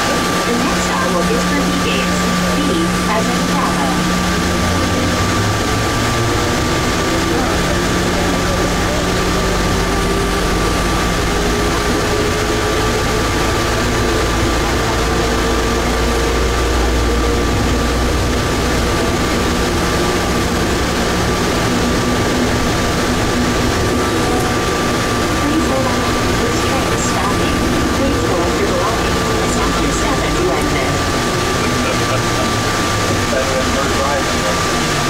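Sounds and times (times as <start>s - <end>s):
faint rising whine: 0.0s - 35.0s
train rumble and hiss in tunnel: 0.0s - 35.0s
constant high tone: 21.8s - 32.6s.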